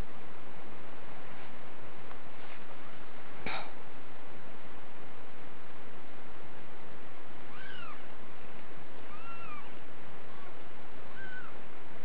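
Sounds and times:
kittens mewing: 7.5 - 8.1, 9.0 - 11.6.

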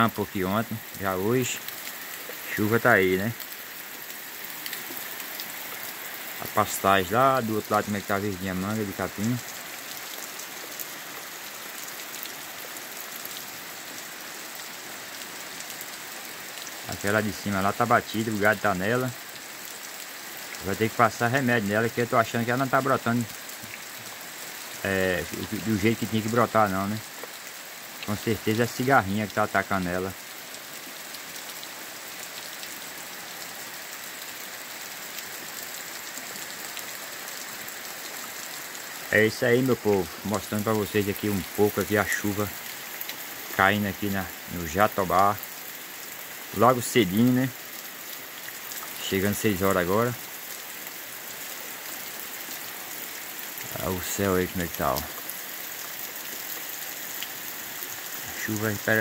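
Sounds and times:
rain on grass and trees: 0.0 - 59.0
raindrop ticks: 0.7 - 2.5, 3.2 - 11.0, 20.4 - 29.4, 38.5 - 50.7.

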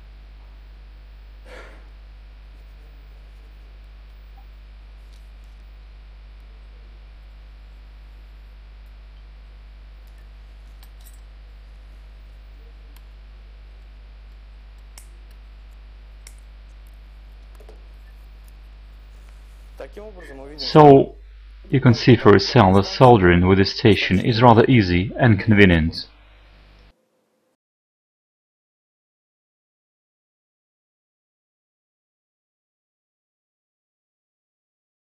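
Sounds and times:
low electrical hum: 0.0 - 27.6
faint clicks and taps: 14.3 - 19.5.

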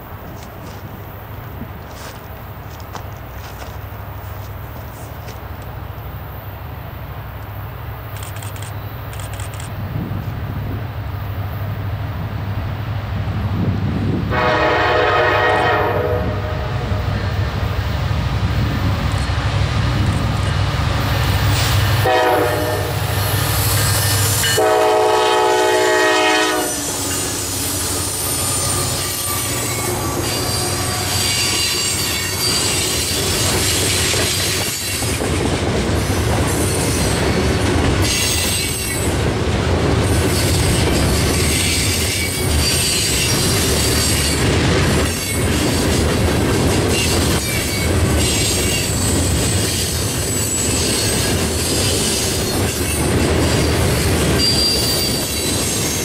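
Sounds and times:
rail clicks: 0.0 - 6.1, 17.1 - 56.0
locomotive rumbling: 0.0 - 56.0
train horn: 14.3 - 17.0, 22.0 - 23.1, 24.4 - 32.8
high wheel squeal: 26.6 - 35.1, 40.3 - 44.4, 46.9 - 56.0.

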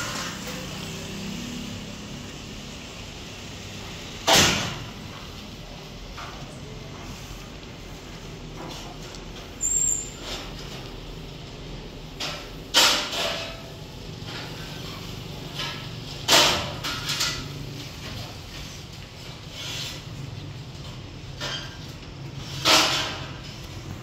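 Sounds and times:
paint roller swishing on ceiling: 4.8 - 11.1, 14.4 - 24.0.

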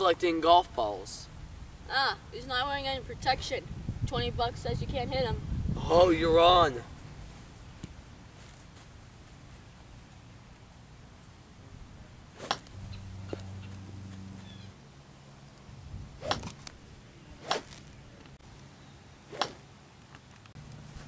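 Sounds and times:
low hum: 6.8 - 21.0
golf club swish and strike: 12.3 - 14.4, 16.1 - 18.0, 19.3 - 19.7.

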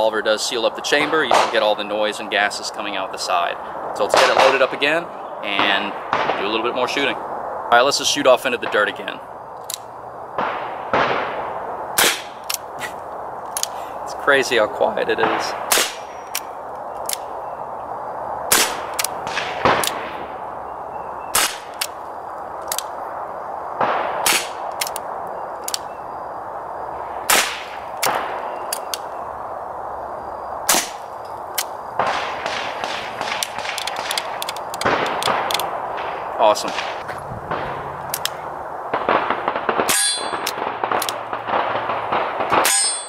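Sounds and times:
suppressed gunshots: 1.3 - 1.6, 5.6 - 6.6, 10.4 - 12.9, 15.2 - 16.1, 18.5 - 20.3, 21.3 - 22.0, 23.8 - 25.0, 31.6 - 43.0
metallic clicks: 13.5 - 13.8, 24.7 - 25.0, 32.8 - 35.7.

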